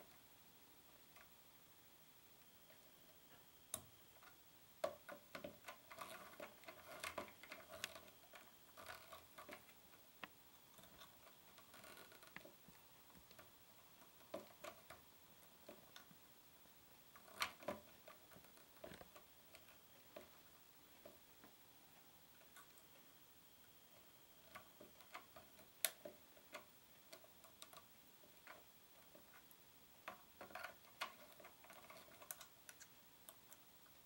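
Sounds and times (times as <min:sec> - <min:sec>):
faint metal clicks: 0:17.1 - 0:34.0.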